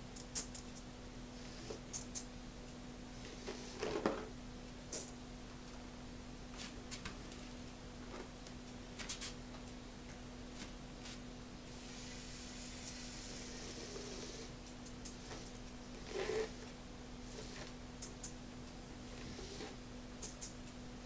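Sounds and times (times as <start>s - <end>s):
faint steady hum: 0.0s - 21.0s
tiny motor whirring: 11.8s - 14.5s.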